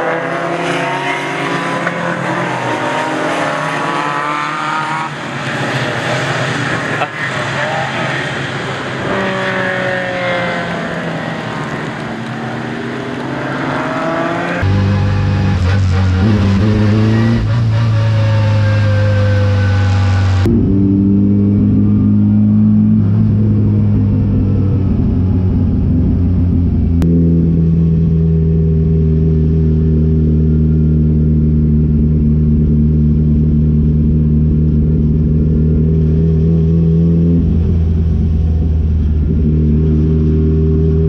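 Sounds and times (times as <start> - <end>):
race cars passing: 0.0 - 25.5.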